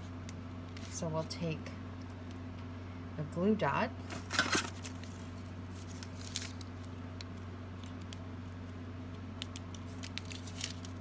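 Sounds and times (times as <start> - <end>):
steady electrical hum: 0.0 - 11.0
paper liner rustling: 9.8 - 11.0.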